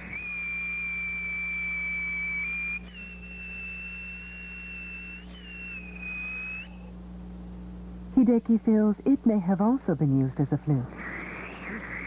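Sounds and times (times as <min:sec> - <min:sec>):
shrill stone whistle: 0:00.0 - 0:06.9, 0:11.0 - 0:12.0.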